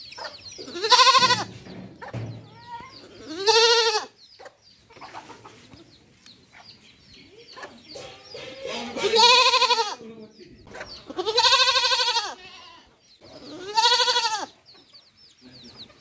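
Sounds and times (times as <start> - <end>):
chicks peeping: 0.0 - 9.2, 10.0 - 12.0, 12.8 - 16.0
goat bleating: 0.6 - 1.5, 2.6 - 4.2, 8.4 - 10.1, 11.0 - 14.6.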